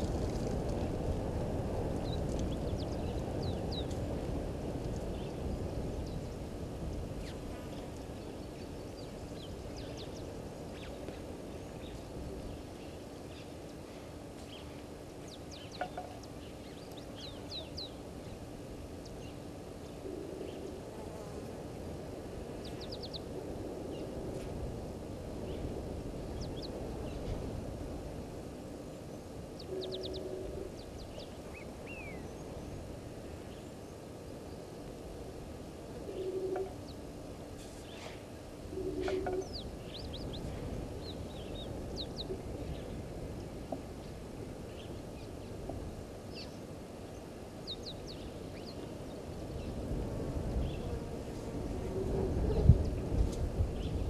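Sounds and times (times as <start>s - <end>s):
low background noise: 0.0s - 54.0s
small birds chirping: 2.0s - 6.4s, 7.2s - 18.4s, 22.6s - 23.3s, 29.6s - 32.8s, 38.8s - 43.0s, 46.3s - 49.8s.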